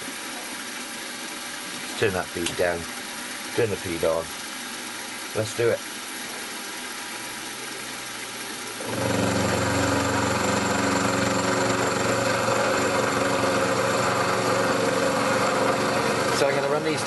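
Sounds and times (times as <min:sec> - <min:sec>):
milling machine humming: 0:08.6 - 0:17.0
end mill cutting metal: 0:08.8 - 0:17.0.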